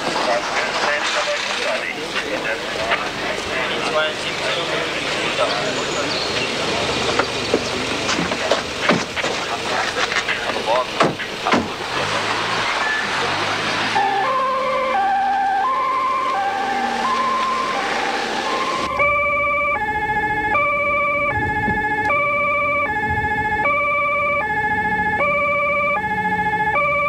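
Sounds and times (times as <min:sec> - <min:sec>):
police two-tone siren: 0:13.8 - 0:27.0.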